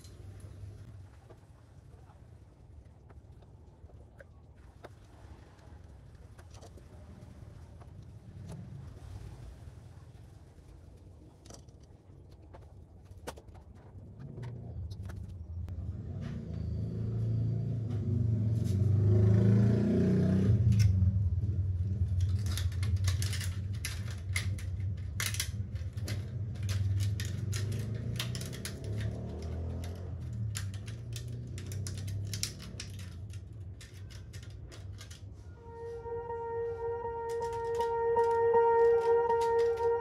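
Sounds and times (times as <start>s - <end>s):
metallic clicks of hand tools: 22.1s - 35.2s.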